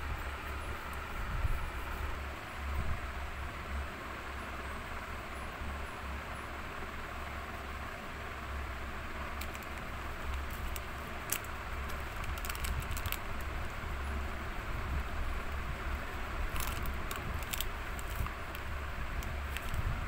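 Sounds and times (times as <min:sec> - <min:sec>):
steady low hum: 0:00.0 - 0:20.0
light clicks and crackles: 0:09.3 - 0:13.6, 0:15.0 - 0:20.0.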